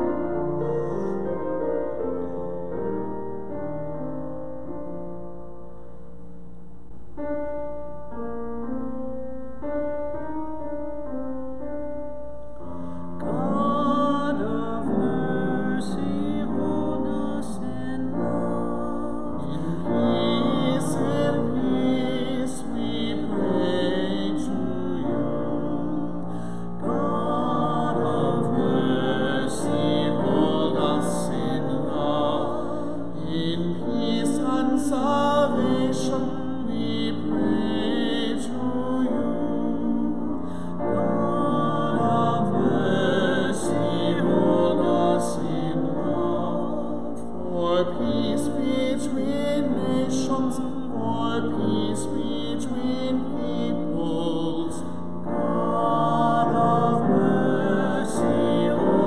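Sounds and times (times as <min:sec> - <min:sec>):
chant-like liturgical singing: 0:13.1 - 0:59.0.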